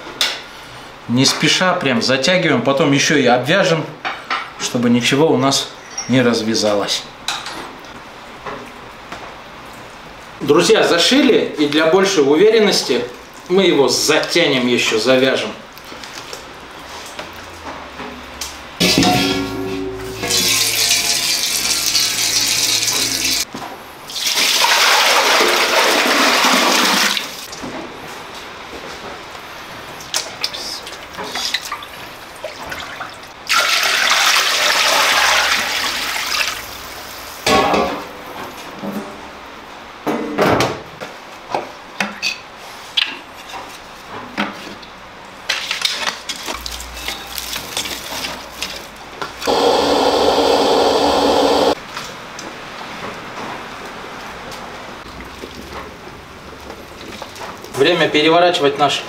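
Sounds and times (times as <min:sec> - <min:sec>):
tap water gushing into metal bowl: 0:20.2 - 0:23.5.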